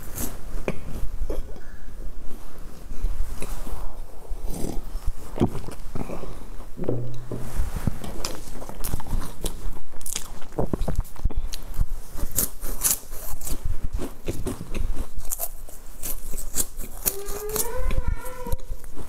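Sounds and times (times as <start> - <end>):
crunchy snack chewing: 8.3 - 19.0.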